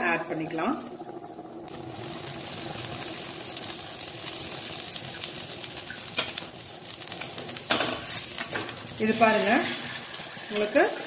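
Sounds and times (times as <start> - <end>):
food sizzling on griddle: 1.6 - 11.0.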